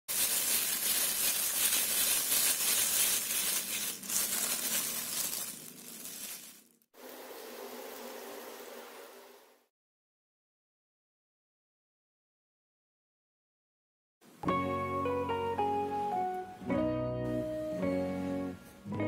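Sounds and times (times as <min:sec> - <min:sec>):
plastic bag crinkling: 0:00.1 - 0:06.9.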